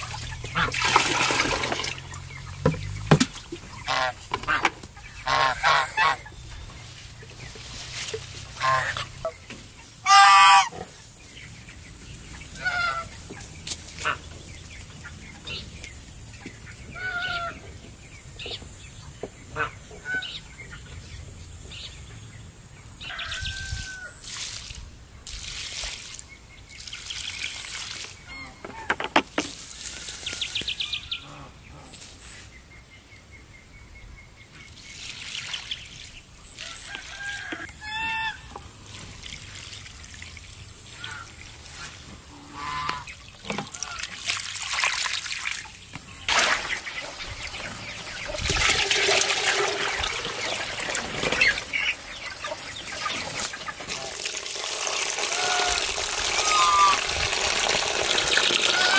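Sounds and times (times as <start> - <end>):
geese honking: 0.0 - 3.0, 3.6 - 6.4, 8.3 - 11.0, 12.5 - 14.3, 16.7 - 17.8, 19.5 - 20.4, 36.6 - 38.6, 40.9 - 44.1, 55.0 - 58.9
water splashing onto soil: 0.0 - 6.2, 6.8 - 10.6, 23.8 - 28.3, 34.6 - 58.9
poultry calling: 0.0 - 6.6, 8.5 - 11.0, 12.4 - 15.8, 16.5 - 18.6, 19.5 - 20.8, 36.6 - 38.6, 40.9 - 44.1, 55.2 - 57.1, 58.4 - 58.9.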